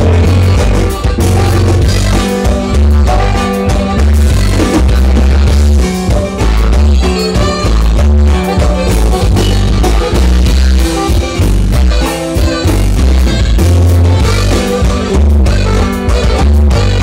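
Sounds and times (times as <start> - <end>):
live norteno band music: 0.0 - 17.0.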